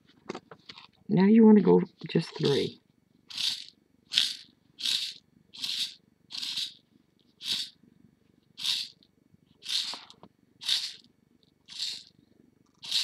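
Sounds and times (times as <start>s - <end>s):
beads rattling in plastic box: 3.3s - 6.8s, 7.4s - 7.7s, 9.6s - 11.1s, 11.7s - 12.1s, 12.7s - 13.0s.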